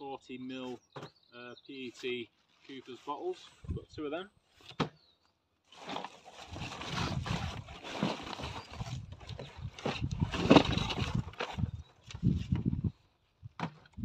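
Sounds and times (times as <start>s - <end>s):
paper and cardboard rustling: 5.7s - 12.6s
low thuds of box handling: 5.8s - 12.8s.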